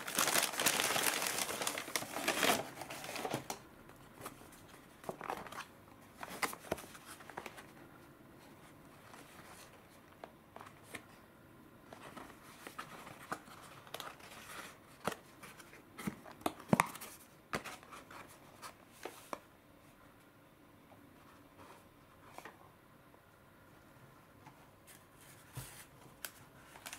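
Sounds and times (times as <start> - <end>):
paper crinkling: 0.0 - 3.6, 24.9 - 26.9.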